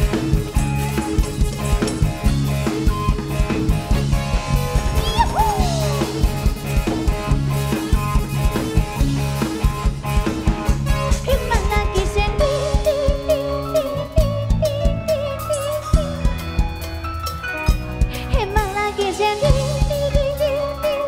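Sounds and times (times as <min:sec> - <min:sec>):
drum kit beat: 0:00.0 - 0:20.4
bass line: 0:00.0 - 0:21.0
keyboard chords: 0:00.0 - 0:21.0.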